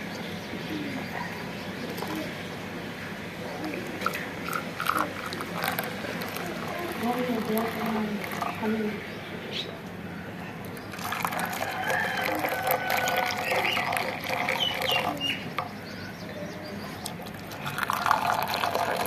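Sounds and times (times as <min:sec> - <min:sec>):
rooster crowing: 0:11.2 - 0:14.3.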